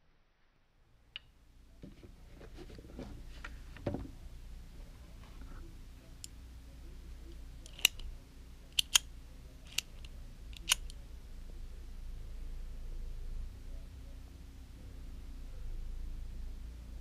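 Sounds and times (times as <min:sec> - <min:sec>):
sharp clicks of a metal pen: 0:07.6 - 0:08.0, 0:08.8 - 0:09.1, 0:09.7 - 0:11.0.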